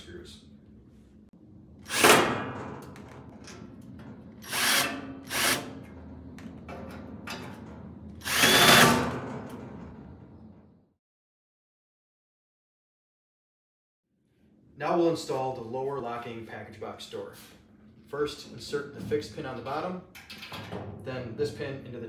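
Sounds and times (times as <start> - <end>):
cordless drill driving screws: 4.4 - 5.7, 8.2 - 9.0.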